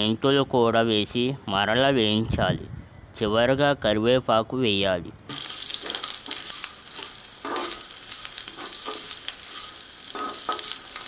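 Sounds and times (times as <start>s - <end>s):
hot oil sizzling and crackling: 5.3s - 11.0s
spatula scraping pan: 5.4s - 11.0s.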